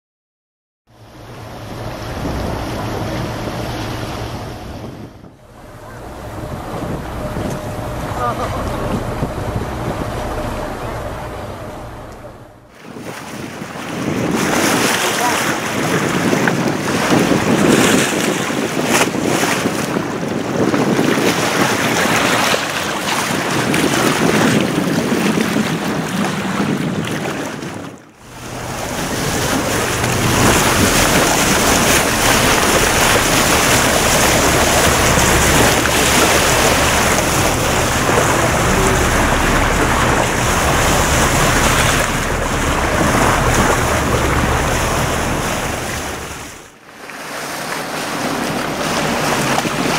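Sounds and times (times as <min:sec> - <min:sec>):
steady low rumble: 0:00.9 - 0:14.0, 0:28.1 - 0:46.9
water splashing along boat bow: 0:00.9 - 0:49.9
wind buffeting microphone: 0:01.0 - 0:46.8, 0:47.5 - 0:49.9.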